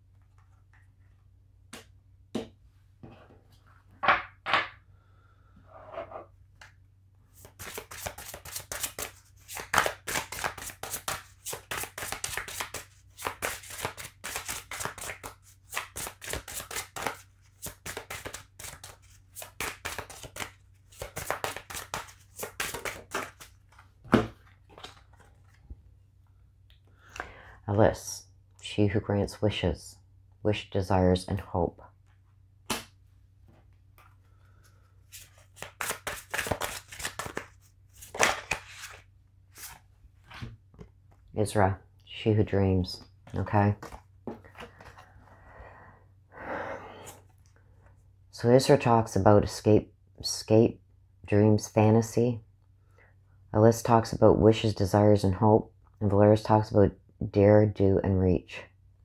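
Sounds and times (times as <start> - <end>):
cards being shuffled: 7.4 - 25.6, 35.0 - 41.2.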